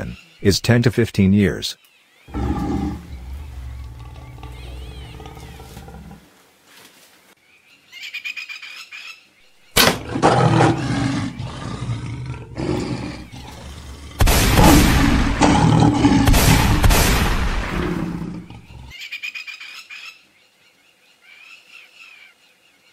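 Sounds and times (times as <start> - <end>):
lion growling and roaring: 2.3 - 6.3, 9.8 - 18.9.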